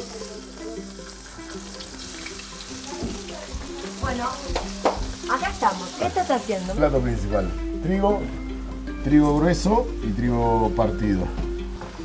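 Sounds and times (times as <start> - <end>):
meat sizzling in a frying pan: 0.0 - 7.3.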